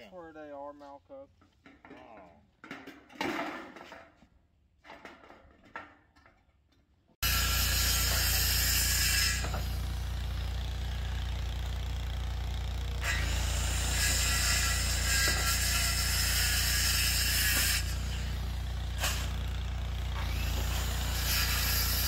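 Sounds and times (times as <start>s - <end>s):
circular saw cutting lumber: 7.2s - 22.0s.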